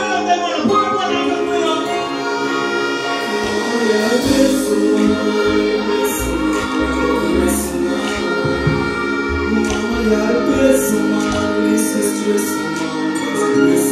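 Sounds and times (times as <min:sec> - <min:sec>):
live band music: 0:00.0 - 0:13.9
person singing: 0:00.0 - 0:13.9
deep bass: 0:04.1 - 0:11.8.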